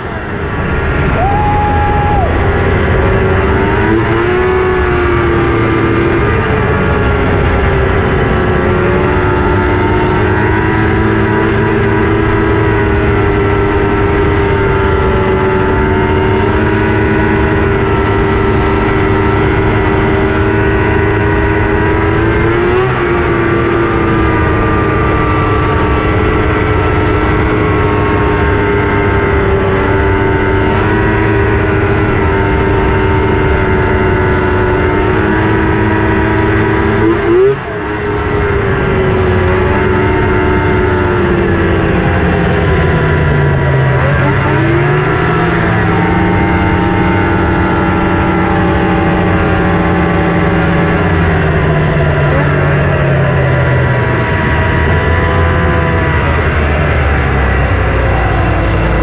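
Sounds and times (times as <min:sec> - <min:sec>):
snowmobile two-stroke engine running: 0:00.0 - 0:59.0.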